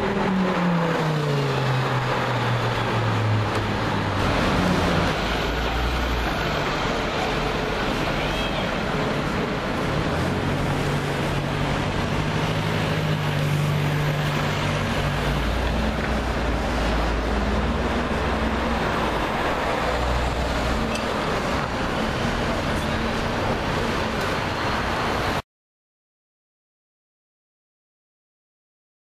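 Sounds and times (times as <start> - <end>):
road noise: 0.0 - 25.4
vehicle engines idling: 2.4 - 25.4.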